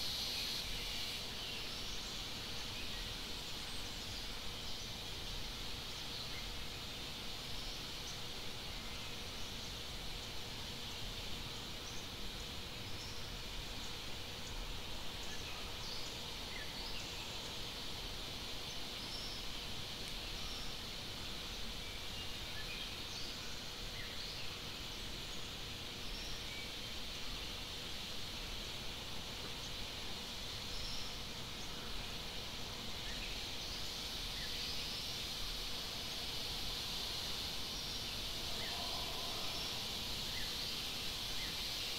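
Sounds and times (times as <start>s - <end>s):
insects droning: 0.0s - 41.9s
high-pitched insect drone: 33.3s - 41.9s.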